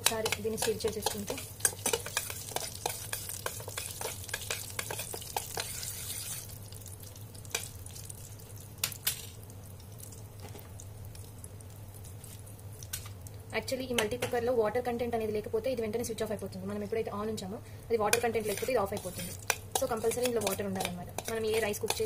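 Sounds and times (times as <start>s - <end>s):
metal spoon clinking and scraping: 0.0s - 6.5s, 18.1s - 22.0s
oil sizzling: 0.0s - 14.5s, 18.0s - 22.0s.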